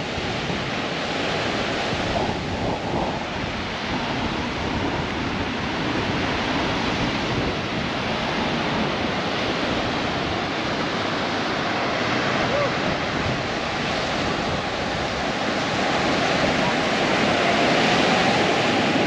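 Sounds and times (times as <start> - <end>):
ocean waves breaking on beach: 0.0 - 19.0
wind rumbling on microphone: 0.0 - 19.0.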